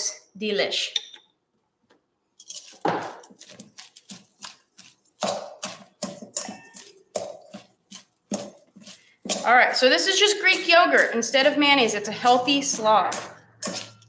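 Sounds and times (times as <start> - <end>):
metal tongs clinking on bowl: 2.4 - 2.8, 6.4 - 6.9
cabbage rustling: 2.6 - 14.0.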